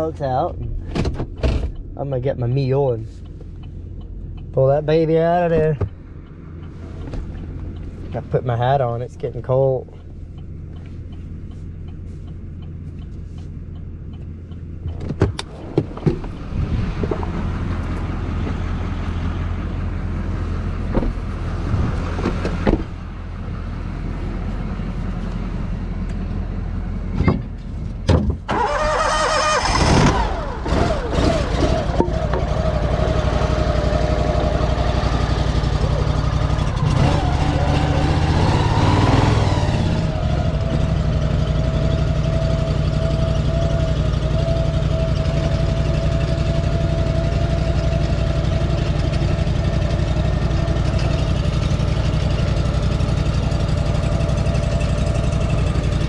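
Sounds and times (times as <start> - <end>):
engine running with whining tone: 0.0 - 56.0
sharp clunks and clicks: 0.8 - 1.9, 14.2 - 16.4, 27.2 - 28.4
engine cranking and starting: 28.5 - 33.3
truck engine idling: 31.8 - 56.0.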